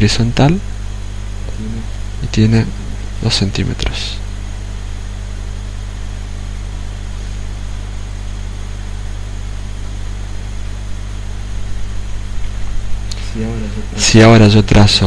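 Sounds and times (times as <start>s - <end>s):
low hum: 0.0s - 15.0s
even hiss: 13.0s - 15.0s.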